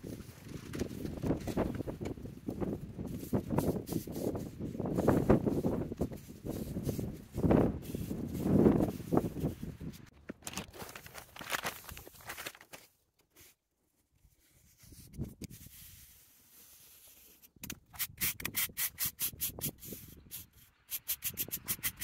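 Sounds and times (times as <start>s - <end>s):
push broom sweeping sand on concrete: 3.0s - 9.8s.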